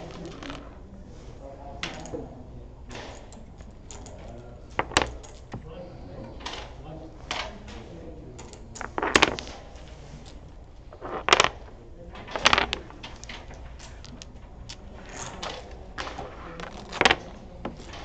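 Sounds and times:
dominoes clacking on wooden table: 0:00.0 - 0:00.8, 0:03.0 - 0:05.6, 0:08.4 - 0:18.0
tiles clicking and sliding: 0:00.0 - 0:00.8, 0:02.9 - 0:05.6, 0:06.4 - 0:18.0.

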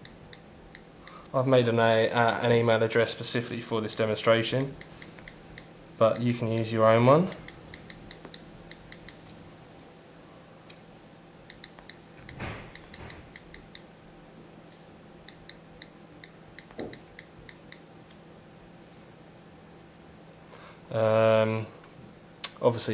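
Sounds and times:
on-screen keyboard clicks: 0:07.3 - 0:09.3, 0:11.4 - 0:13.9, 0:15.2 - 0:17.8.

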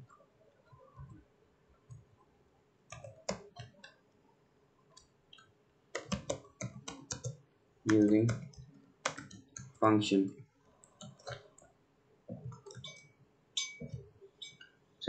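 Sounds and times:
keyboard keystrokes clicking: 0:06.0 - 0:09.8, 0:12.4 - 0:13.0.

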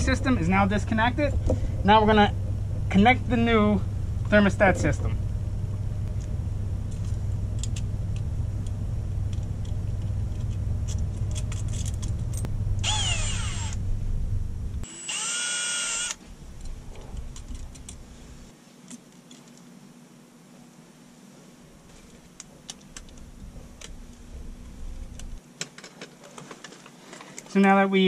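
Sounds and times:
steady low rumble: 0:00.0 - 0:15.2, 0:15.8 - 0:18.5, 0:21.7 - 0:25.4
short high whines: 0:12.4 - 0:17.3.

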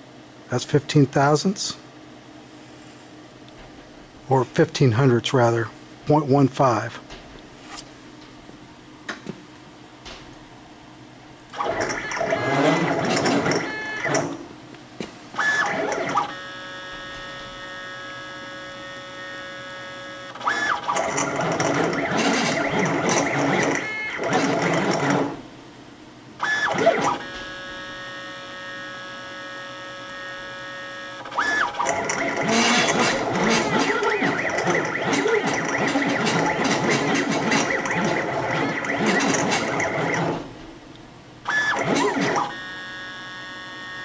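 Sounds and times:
drive motors whining: 0:11.5 - 0:14.4, 0:15.4 - 0:25.4, 0:26.4 - 0:40.8, 0:41.5 - 0:44.0.

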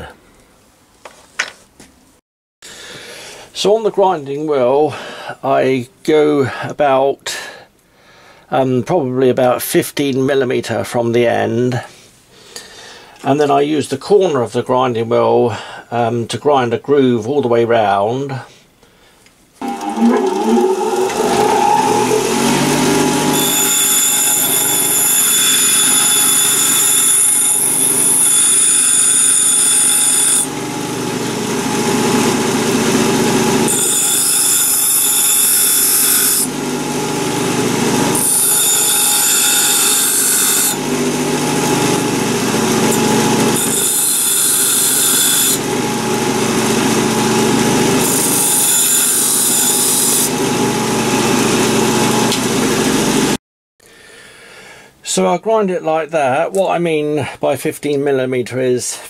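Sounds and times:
bench grinder motor running: 0:19.6 - 0:53.4.

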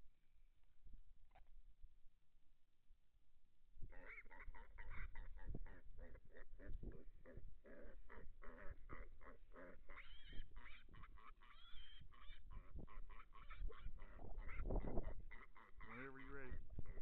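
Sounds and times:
hog squealing: 0:07.7 - 0:16.6.

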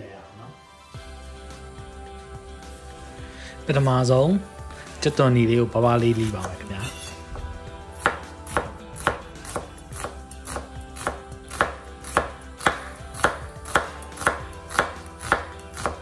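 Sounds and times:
knife slicing on wooden board: 0:06.1 - 0:16.0.

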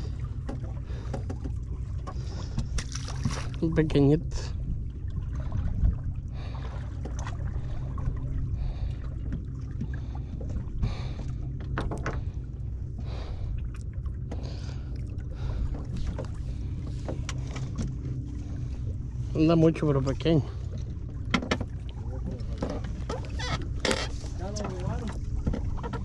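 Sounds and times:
water against boat hull: 0:00.0 - 0:26.0
wind: 0:00.0 - 0:26.0
light clicks and knocks: 0:20.8 - 0:26.0.

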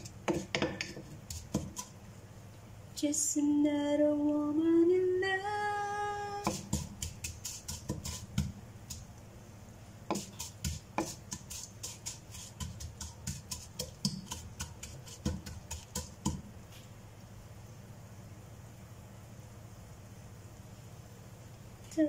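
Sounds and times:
spatula knocking and scraping pot: 0:00.0 - 0:02.0, 0:06.4 - 0:09.0, 0:10.1 - 0:16.5.

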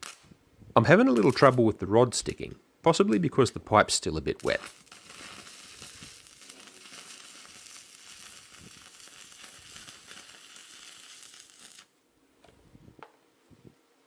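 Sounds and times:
welding arc crackling: 0:00.0 - 0:00.4, 0:01.0 - 0:01.7, 0:04.4 - 0:11.9.

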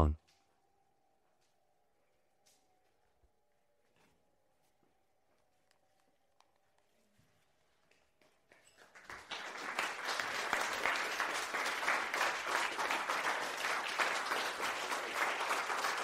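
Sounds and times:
audience applause: 0:08.8 - 0:16.0.

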